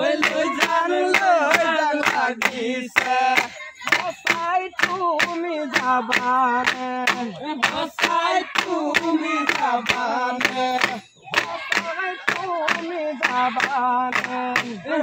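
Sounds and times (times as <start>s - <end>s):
group singing folk song: 0.0s - 15.0s
sharp rhythmic beat: 0.0s - 15.0s.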